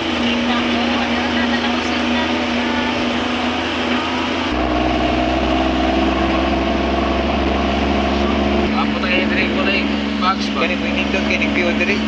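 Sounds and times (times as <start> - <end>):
vehicle engine and road noise: 0.0 - 12.0.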